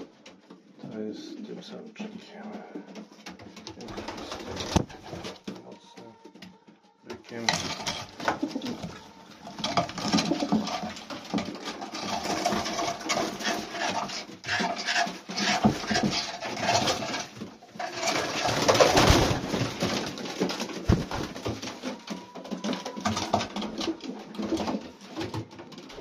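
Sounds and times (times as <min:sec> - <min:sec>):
pigeons cooing: 0:07.1 - 0:26.0.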